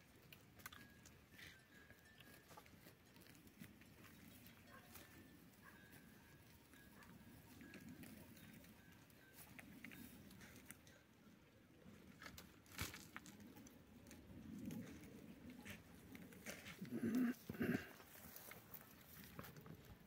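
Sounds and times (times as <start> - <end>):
leaves and twigs rustling: 12.0 - 20.0.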